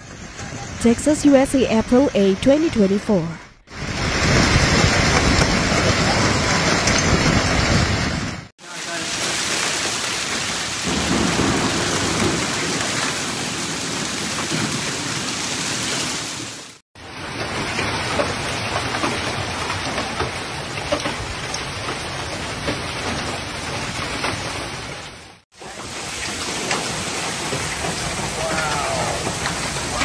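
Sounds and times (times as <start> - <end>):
heavy rain downpour: 0.0 - 30.0
hailstones ticking on metal: 8.7 - 15.0, 25.6 - 30.0.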